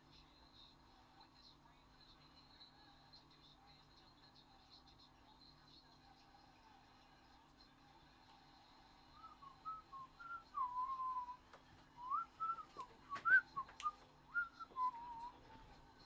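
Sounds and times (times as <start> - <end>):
person whistling a tune: 9.2 - 11.4, 12.0 - 15.4.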